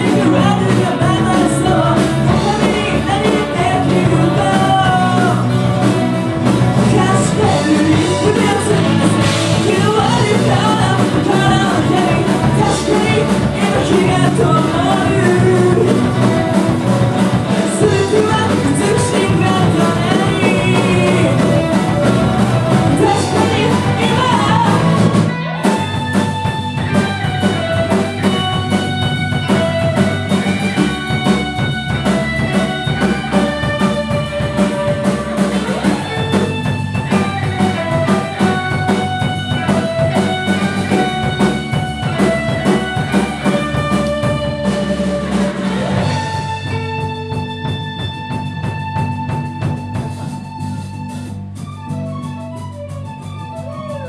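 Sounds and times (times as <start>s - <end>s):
person singing: 0.0s - 26.2s
live rock band playing: 0.0s - 54.0s.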